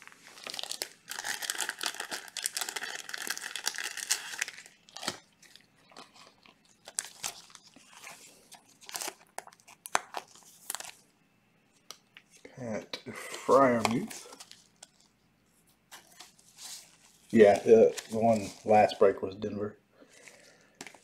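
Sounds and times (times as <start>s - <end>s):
plastic crinkling and rustling: 0.0s - 11.0s, 15.9s - 19.1s.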